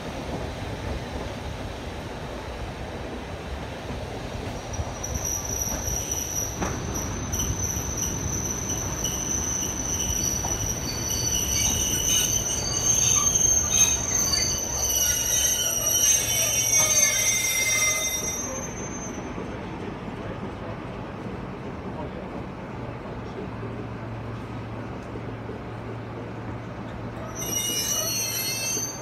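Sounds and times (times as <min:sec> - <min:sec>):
low rolling train rumble: 0:00.0 - 0:29.0
train wheels squealing: 0:04.5 - 0:19.6, 0:27.1 - 0:29.0.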